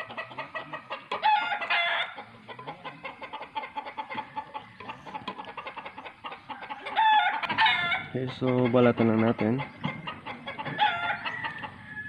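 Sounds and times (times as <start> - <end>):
chickens clucking: 0.0 - 12.0
rooster crowing: 1.1 - 2.2, 6.5 - 8.1, 10.6 - 12.0.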